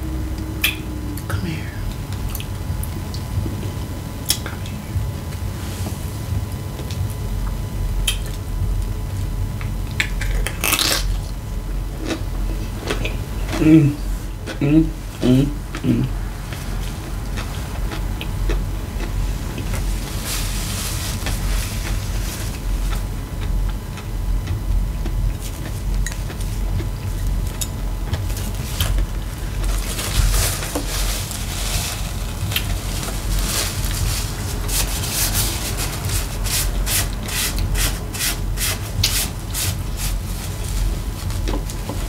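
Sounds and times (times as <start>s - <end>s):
steady low hum: 0.0s - 42.0s
chewing: 15.7s - 20.7s, 21.3s - 30.0s
paper napkin rustling: 19.2s - 23.1s, 28.2s - 42.0s.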